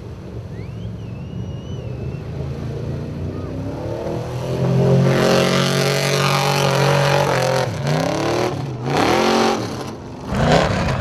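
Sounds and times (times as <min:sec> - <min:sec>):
buggy engine revving: 0:04.0 - 0:11.0.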